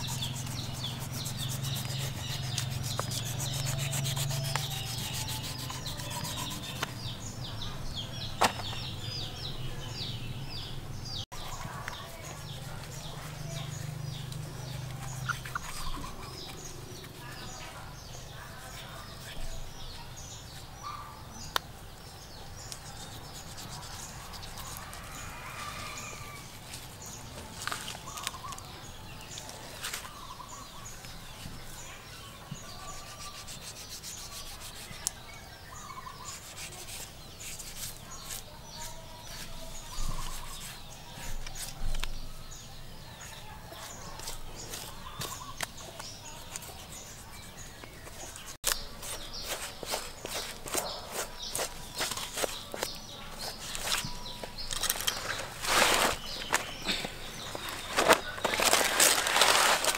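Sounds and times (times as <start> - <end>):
knife scraping under hide: 0.0 - 7.0, 14.6 - 17.6, 46.4 - 56.8.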